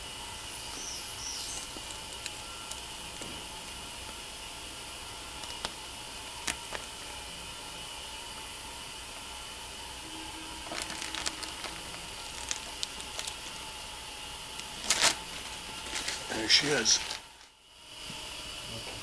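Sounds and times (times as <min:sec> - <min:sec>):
steady hiss: 0:00.0 - 0:19.0
transfer paper rustling and crinkling: 0:10.6 - 0:13.6, 0:14.6 - 0:17.5.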